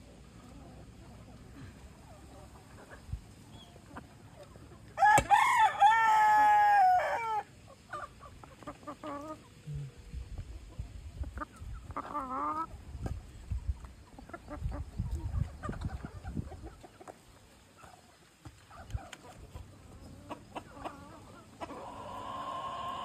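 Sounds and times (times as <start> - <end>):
chickens clucking: 0.0 - 5.2, 5.9 - 23.0
rooster crowing: 5.0 - 7.5.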